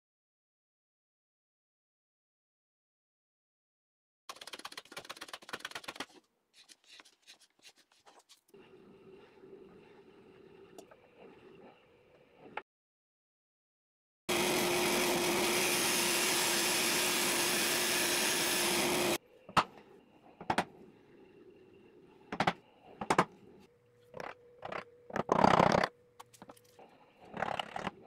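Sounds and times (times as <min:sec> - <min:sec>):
band saw cutting wood: 0:14.3 - 0:19.2.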